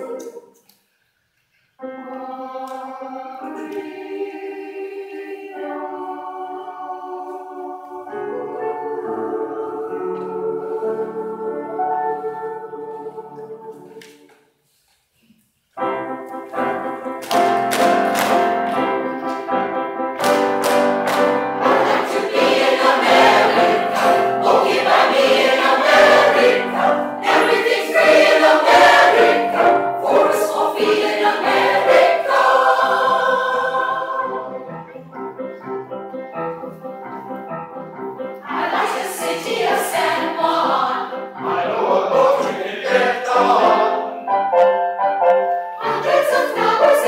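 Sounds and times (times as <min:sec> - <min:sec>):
mixed choir singing: 0:01.8 - 0:14.4, 0:20.3 - 0:35.1, 0:38.4 - 0:44.6, 0:45.5 - 0:47.0.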